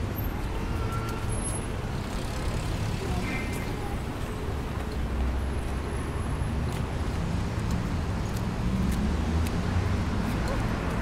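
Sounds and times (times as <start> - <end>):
road traffic rumble: 0.0 - 11.0
footsteps clicking: 6.6 - 9.6.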